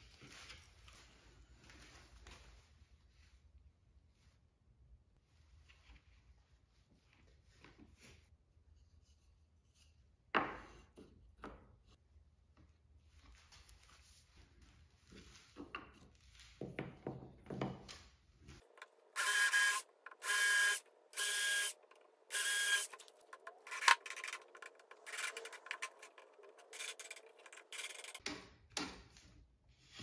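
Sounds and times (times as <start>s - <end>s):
cordless drill whining: 19.2s - 28.2s
wooden pieces knocking: 23.0s - 28.4s.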